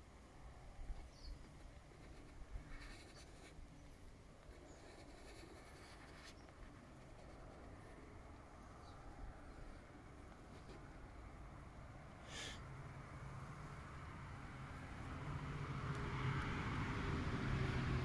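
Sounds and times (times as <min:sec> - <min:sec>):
faint scratching on vinyl: 0:00.8 - 0:11.6.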